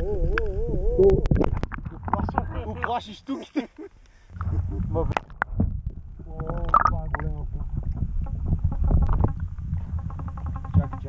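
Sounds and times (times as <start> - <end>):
water sloshing underwater: 1.0 - 3.0, 4.2 - 11.0.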